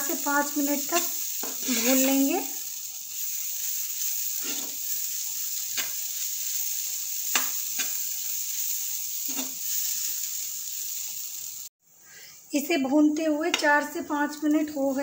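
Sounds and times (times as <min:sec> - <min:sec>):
filling sizzling in frying pan: 0:00.0 - 0:11.8, 0:13.4 - 0:15.0
steel spoon scraping pan: 0:03.6 - 0:05.0, 0:09.2 - 0:10.1.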